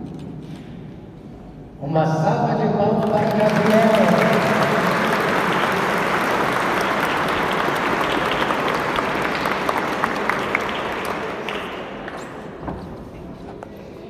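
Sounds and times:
congregation applauding: 0:03.0 - 0:12.2.

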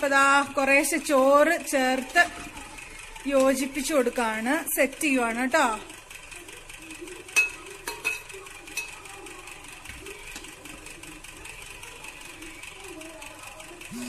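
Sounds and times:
metal spoon clinking on pot: 0:07.4 - 0:09.0.

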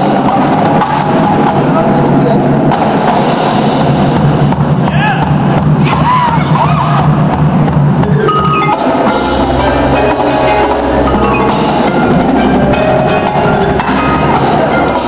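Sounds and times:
marching drums and cymbals: 0:00.0 - 0:15.0
marimbas and mallet keyboards: 0:08.0 - 0:15.0.

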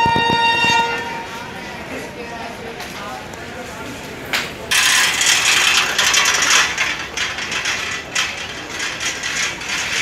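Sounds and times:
wheeled luggage rattling on paving: 0:04.7 - 0:10.0.

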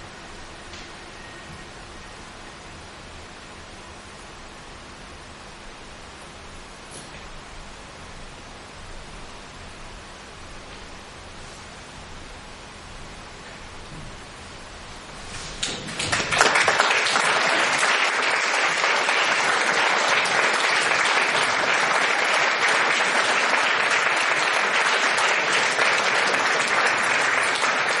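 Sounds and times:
audience applauding: 0:15.6 - 0:28.0.

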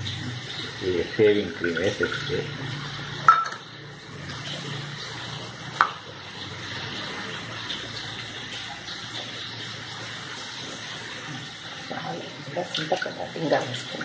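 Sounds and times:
ladle clinking against metal pot: 0:03.3 - 0:03.6.

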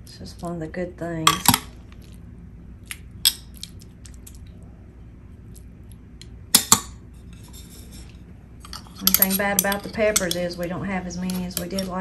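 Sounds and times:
metal tongs clinking on dishes: 0:08.6 - 0:12.0.

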